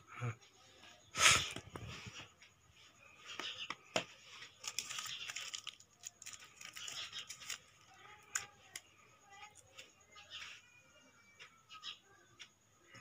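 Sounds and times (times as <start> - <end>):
plastic blister pack crinkling: 4.3 - 8.9
scissors cutting plastic: 4.6 - 9.8.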